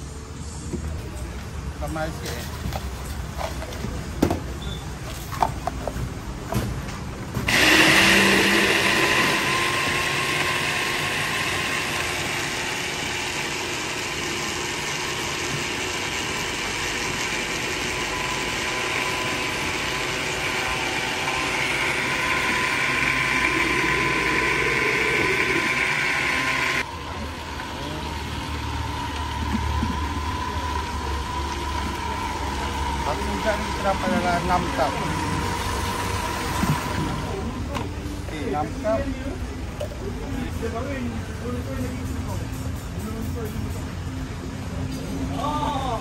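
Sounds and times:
blender crushing ice: 7.5 - 26.9.

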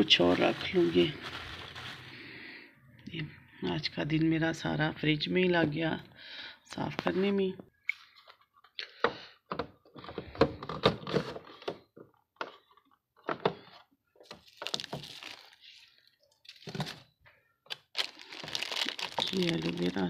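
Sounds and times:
rustling: 0.0 - 2.2.

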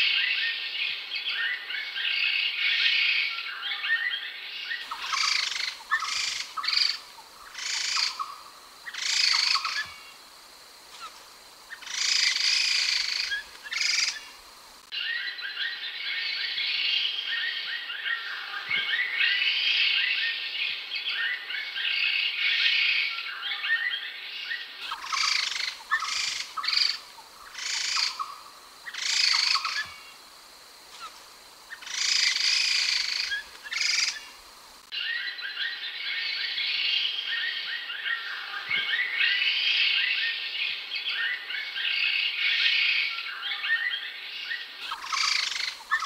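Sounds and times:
harsh bird calls: 4.8 - 10.1, 11.7 - 14.3, 24.8 - 30.2, 31.7 - 34.3, 44.8 - 46.0
laughingthrush chattering song: 4.9 - 9.9, 31.8 - 34.3, 44.8 - 46.0.

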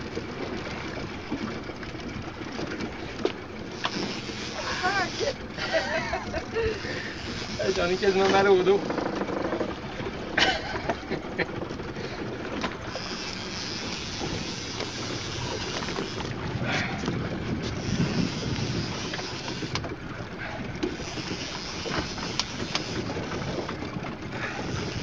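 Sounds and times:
sea washing around boat: 0.0 - 25.0
wind buffeting microphone: 14.1 - 25.0.

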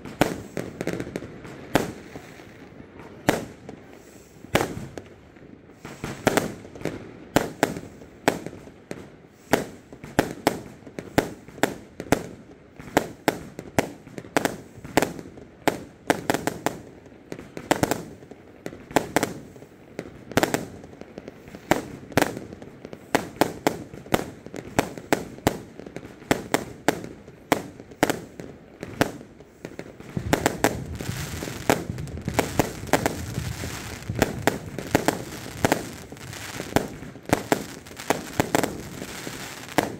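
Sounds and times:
firework crackling: 0.0 - 8.6, 13.8 - 39.9
firework bangs: 23.0 - 39.9.

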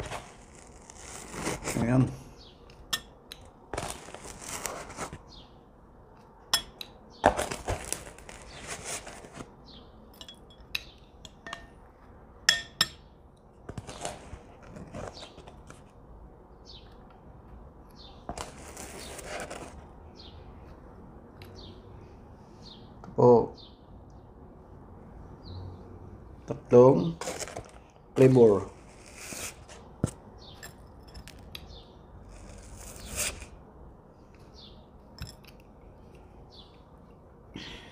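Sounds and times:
ice cream scoop scraping: 0.0 - 2.2, 3.7 - 5.4, 7.3 - 9.6, 13.7 - 15.8, 18.3 - 19.9, 27.0 - 33.6.

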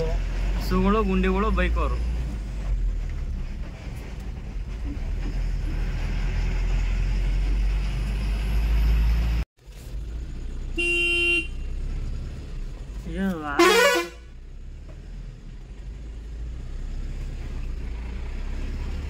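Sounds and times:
truck engine rumble: 0.0 - 19.0
truck horn blast: 10.8 - 11.8, 13.6 - 14.4.

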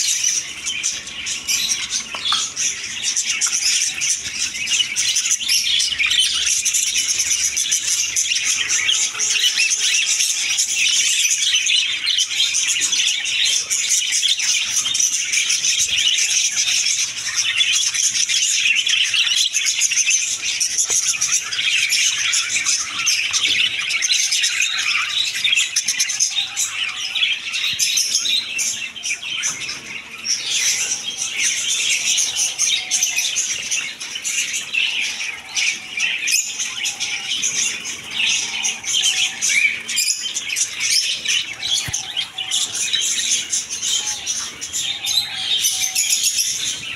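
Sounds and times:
budgerigars chattering: 0.0 - 46.9.

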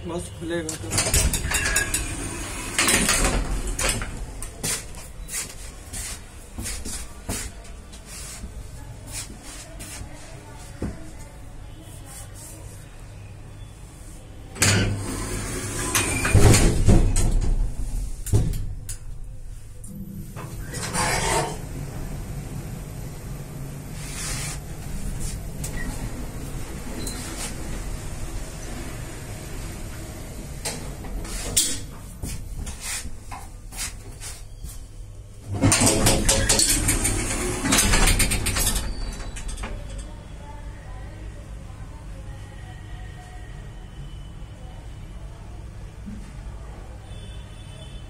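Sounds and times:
lift doors rattling: 0.8 - 4.4, 14.6 - 18.7, 35.5 - 40.1
lift humming: 19.9 - 31.4.

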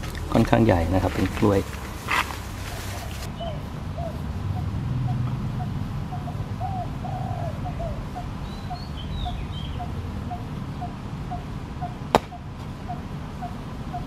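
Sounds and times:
high bird chirping call: 3.0 - 14.0
hoe chopping into ground: 12.1 - 12.3.

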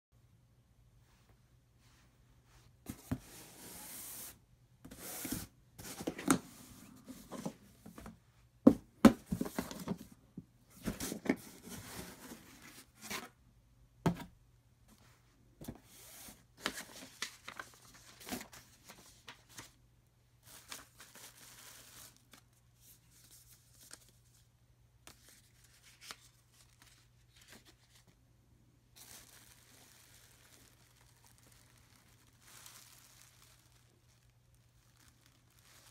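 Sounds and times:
paper rustling: 4.9 - 8.1, 15.6 - 19.8, 20.4 - 24.5, 25.1 - 28.2, 29.0 - 35.9
plastic wrap crinkling: 28.9 - 35.9.

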